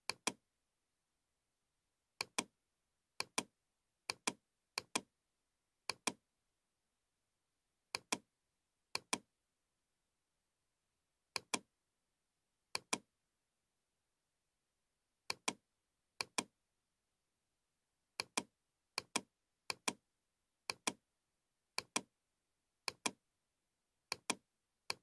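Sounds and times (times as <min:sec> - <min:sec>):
computer mouse button clicking: 0:02.2 - 0:02.5, 0:03.2 - 0:03.5, 0:04.1 - 0:05.1, 0:05.9 - 0:06.2, 0:07.9 - 0:08.2, 0:11.4 - 0:11.6, 0:12.8 - 0:13.0, 0:15.3 - 0:15.6, 0:16.2 - 0:16.5, 0:18.2 - 0:20.0, 0:20.7 - 0:21.0, 0:22.9 - 0:23.2, 0:24.1 - 0:25.0.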